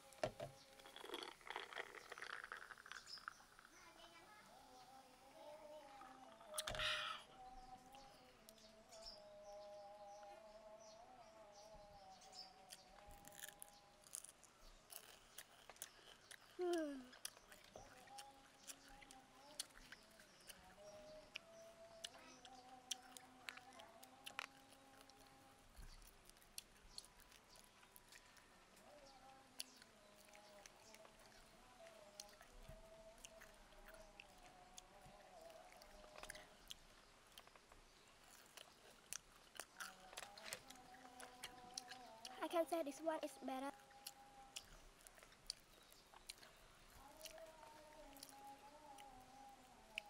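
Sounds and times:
faint birds chirping: 0.0 - 50.0
fried insect crackling: 0.6 - 4.0
crisp crunches of biting: 0.8 - 3.3, 12.7 - 18.2.

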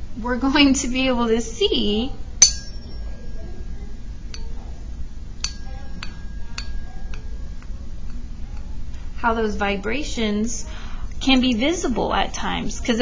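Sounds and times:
tuning fork ringing: 2.4 - 4.7, 5.3 - 8.8.

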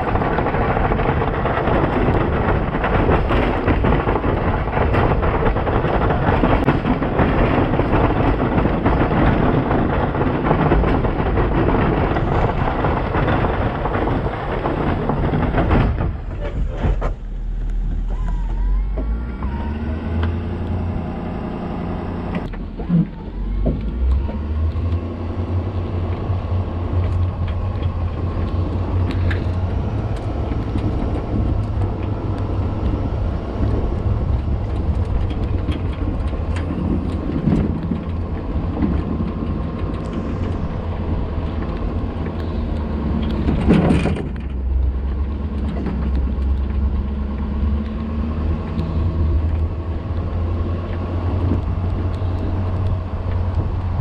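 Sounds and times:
truck engine and road rumble: 0.0 - 54.0.

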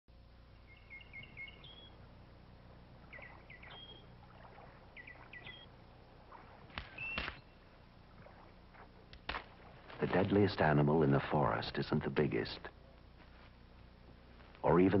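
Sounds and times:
faint low hum: 0.1 - 15.0
songbird chirping: 0.1 - 15.0
sharp snaps: 6.7 - 7.5.

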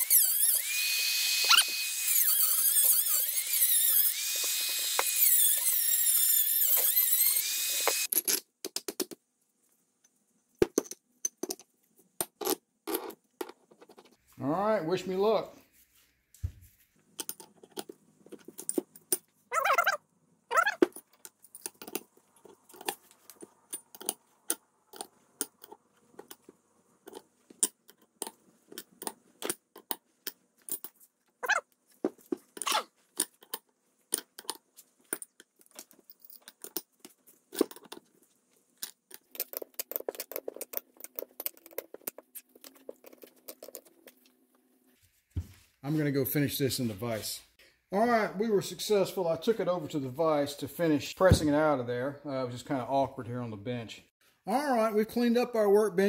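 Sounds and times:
metal scraping or squeaking: 19.5 - 20.9
metal parts clinking: 27.1 - 31.6, 32.5 - 38.1.

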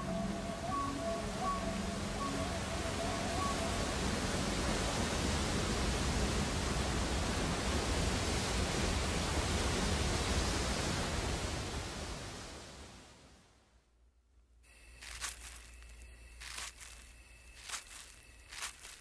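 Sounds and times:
waterfall roaring: 0.0 - 11.9.

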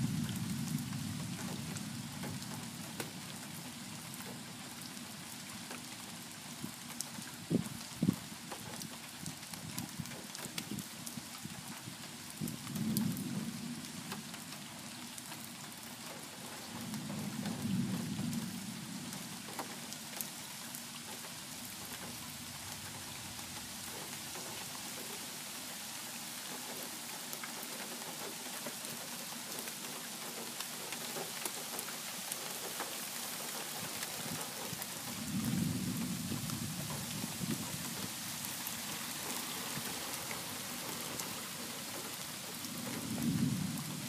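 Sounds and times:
thunder rumbles: 0.0 - 3.0, 12.4 - 13.9, 16.8 - 19.7, 34.8 - 44.0
steady rain: 0.0 - 44.0.

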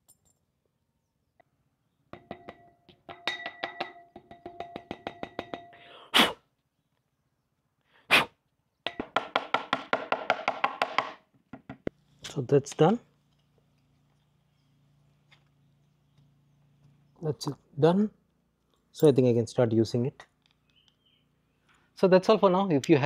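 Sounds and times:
puffs of breath blown: 5.7 - 6.4, 7.8 - 8.4
air filter knocking on wooden table: 8.9 - 11.8.

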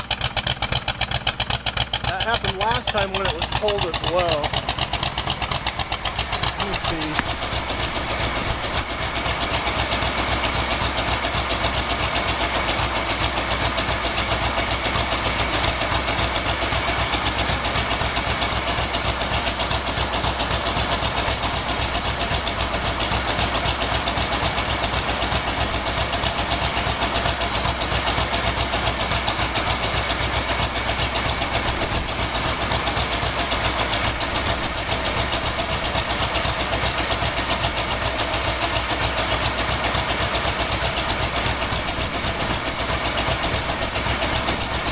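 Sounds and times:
truck engine idling: 0.0 - 44.9.

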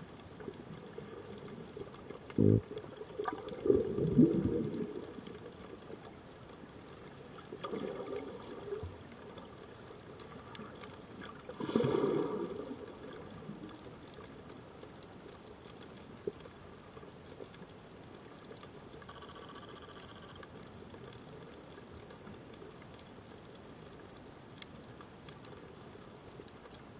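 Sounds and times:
steady low hiss: 0.0 - 26.9
faint clicks: 0.1 - 11.6, 12.5 - 26.9
underwater exhaled bubbles: 0.1 - 14.6.

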